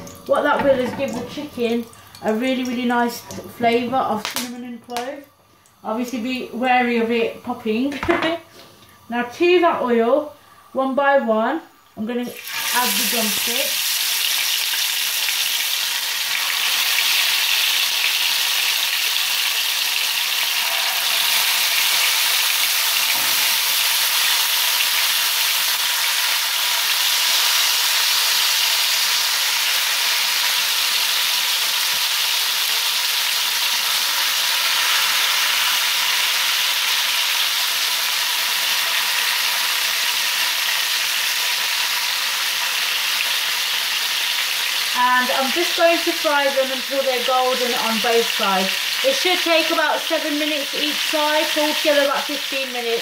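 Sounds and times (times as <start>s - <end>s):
chicken sizzling in hot oil: 12.2s - 53.0s.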